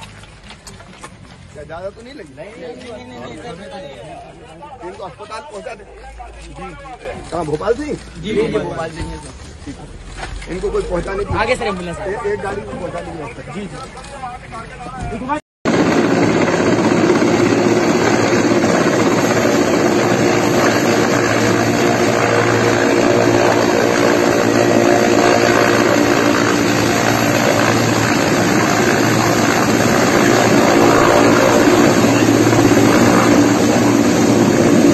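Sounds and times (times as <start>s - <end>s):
distant helicopter hovering: 15.7s - 34.9s
helicopter rotor and turbines: 15.7s - 34.9s.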